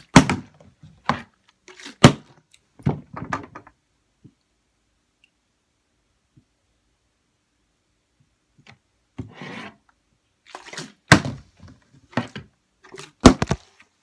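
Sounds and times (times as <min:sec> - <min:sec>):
plastic bottle scraping on wood: 0:09.2 - 0:09.9.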